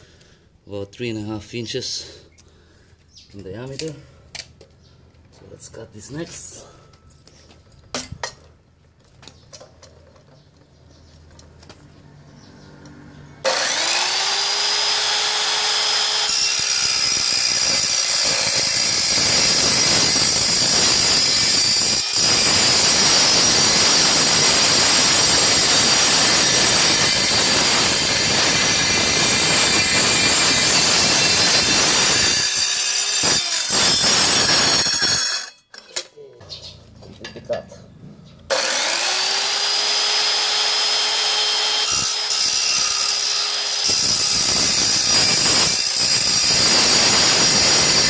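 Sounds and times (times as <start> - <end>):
circular saw cutting steel pipe: 13.4 - 35.6, 38.5 - 48.0.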